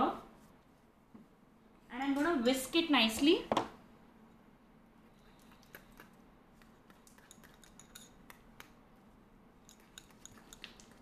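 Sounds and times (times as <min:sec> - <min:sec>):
whisk clicking against glass bowl: 0:09.7 - 0:11.0.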